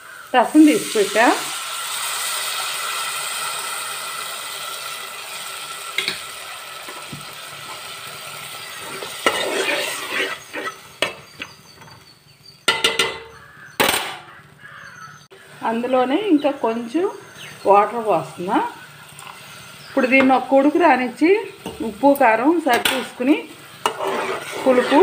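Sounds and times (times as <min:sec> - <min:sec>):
liquid sizzling in a hot pot: 0:00.0 - 0:11.9, 0:15.4 - 0:25.0
metal ladle scraping a pot: 0:08.6 - 0:12.0, 0:22.7 - 0:25.0
ladle clinking against a pot: 0:12.7 - 0:14.2.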